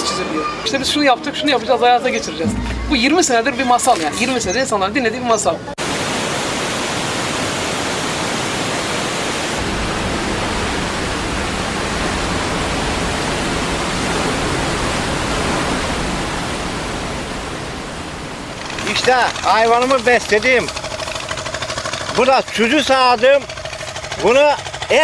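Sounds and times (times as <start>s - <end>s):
river water rushing over rocks: 5.8s - 20.6s.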